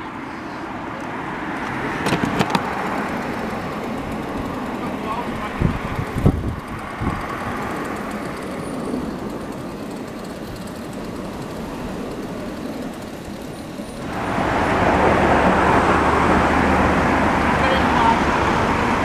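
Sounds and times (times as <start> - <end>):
cars passing: 0.0 - 19.0.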